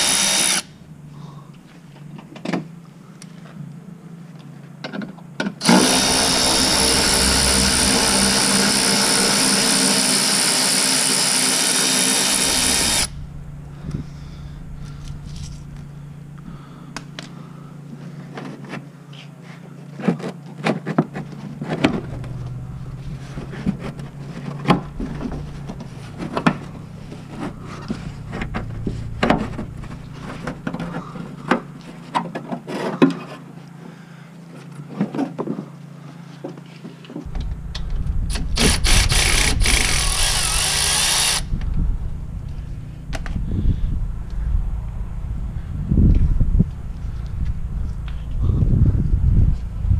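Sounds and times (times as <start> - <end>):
cordless power tool spinning: 0.0 - 0.7, 5.6 - 13.2, 38.3 - 41.8.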